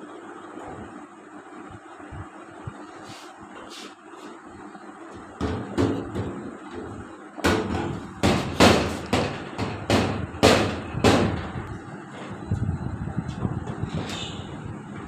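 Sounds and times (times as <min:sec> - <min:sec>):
microphone banging on metal cabinet: 0:05.4 - 0:11.7.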